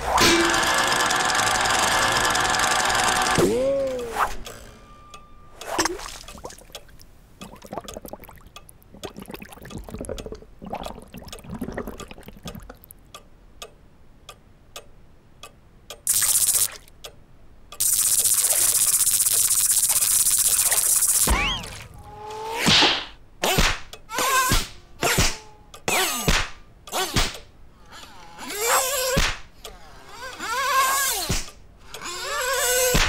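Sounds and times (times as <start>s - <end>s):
soft wet drips: 5.7s - 14.9s
loud whirring hiss with flutter: 17.8s - 21.3s.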